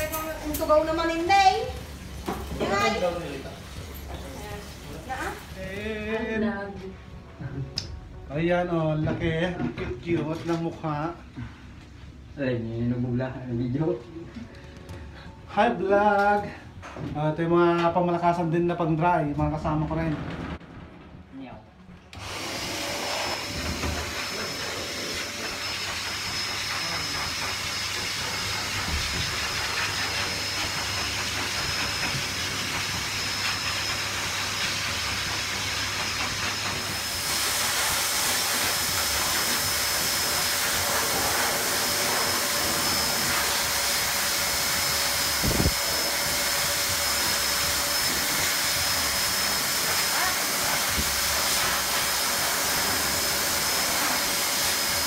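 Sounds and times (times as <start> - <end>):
pet dryer blowing air: 0.0 - 5.8, 22.1 - 55.0.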